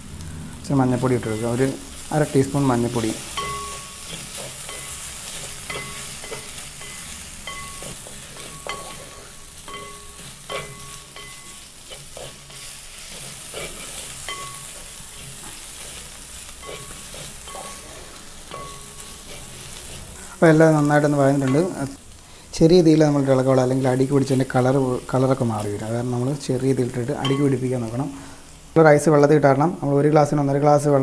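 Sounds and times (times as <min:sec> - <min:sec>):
food sizzling in oil: 0:00.0 - 0:31.0
pan ringing: 0:01.0 - 0:11.8, 0:14.1 - 0:15.0, 0:16.6 - 0:19.3, 0:26.8 - 0:28.2
spoon scraping and knocking pan: 0:02.4 - 0:20.2, 0:27.1 - 0:27.7.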